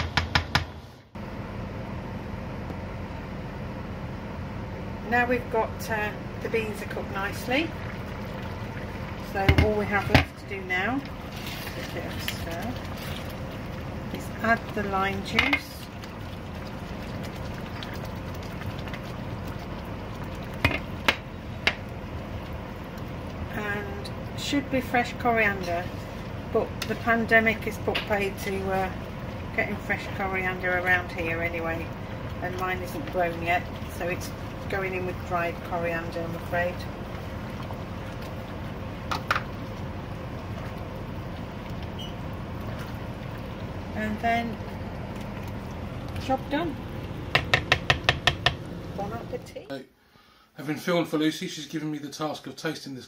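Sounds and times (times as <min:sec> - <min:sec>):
spatula knocking a pan: 0:00.0 - 0:00.8, 0:20.6 - 0:21.8, 0:47.3 - 0:48.6
steady background hum: 0:00.0 - 0:53.0
curry hissing in a pan: 0:05.8 - 0:49.7
sharp knocks: 0:47.3 - 0:48.6.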